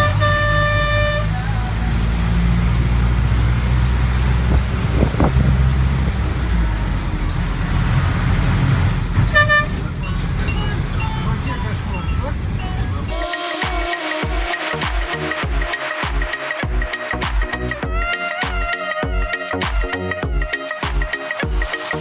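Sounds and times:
vehicle horn: 0:00.0 - 0:01.8, 0:09.2 - 0:09.9
bus engine rumbling: 0:00.0 - 0:13.1.

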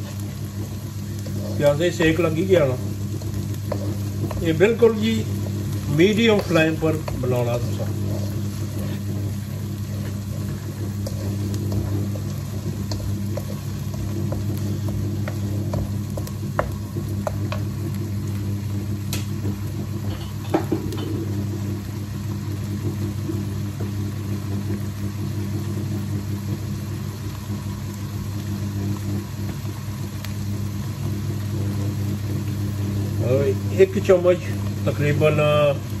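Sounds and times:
wooden spoon tapping pan: 0:00.0 - 0:18.1
machine humming: 0:00.0 - 0:36.0
onion sizzling in wok: 0:00.0 - 0:36.0.

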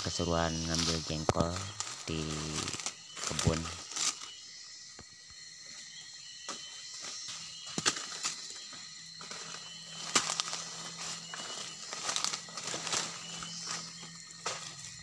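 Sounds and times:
leaves crackling: 0:00.0 - 0:04.4, 0:06.4 - 0:15.0
footsteps in dry leaves: 0:00.5 - 0:04.4, 0:06.6 - 0:15.0.

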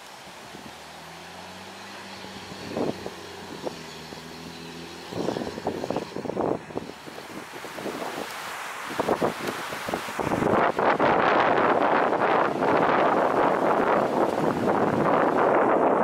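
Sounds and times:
diesel engine driving off: 0:00.2 - 0:08.2
wind buffeting microphone: 0:00.3 - 0:16.0.

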